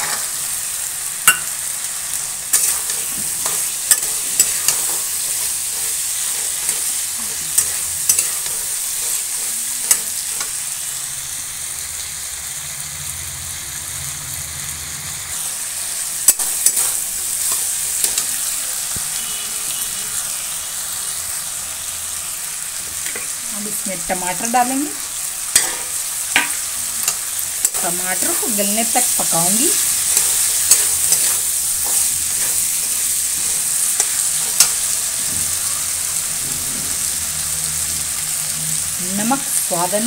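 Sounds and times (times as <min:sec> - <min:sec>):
vegetables sizzling in oil: 0:00.0 - 0:40.0
metal spatula scraping pan: 0:02.5 - 0:10.6.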